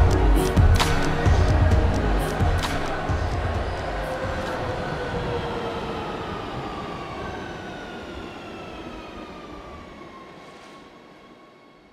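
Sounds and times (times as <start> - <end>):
train rumble and hiss: 0.0 - 11.9.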